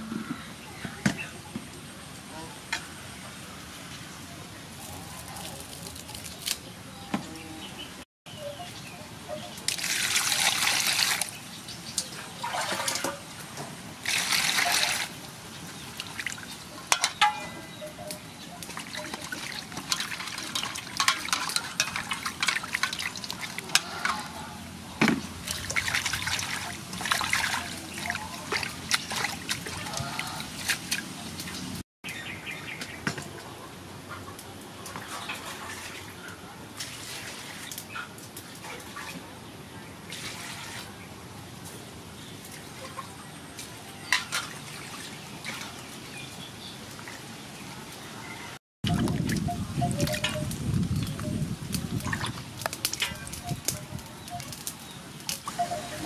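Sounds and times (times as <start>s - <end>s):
water splashing and sloshing: 9.4s - 31.8s, 34.8s - 39.4s, 40.0s - 41.1s, 42.3s - 48.2s, 48.8s - 56.0s
water gushing into metal basin: 9.7s - 11.4s, 12.4s - 13.3s, 14.0s - 15.2s, 18.8s - 24.2s, 25.4s - 31.0s.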